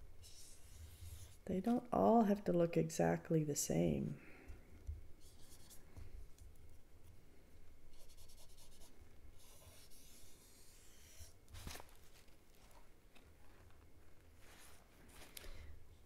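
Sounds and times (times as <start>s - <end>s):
paintbrush brushing on paper: 7.9s - 11.3s.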